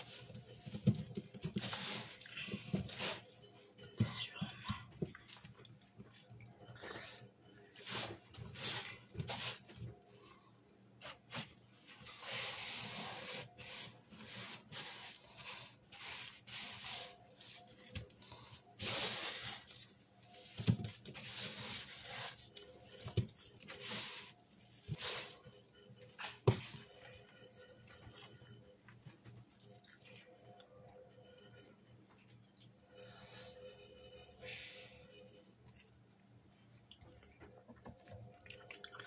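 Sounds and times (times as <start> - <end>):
sponge scrubbing gritty powder: 12.0 - 17.6.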